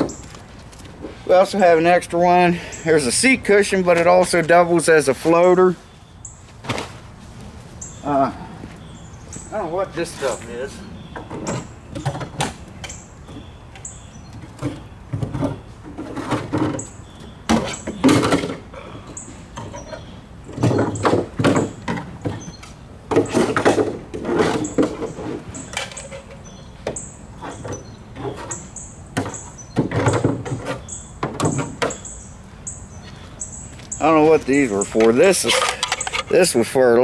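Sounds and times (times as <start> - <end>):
metal and plastic squeaks: 11.1 - 32.2, 34.7 - 36.6.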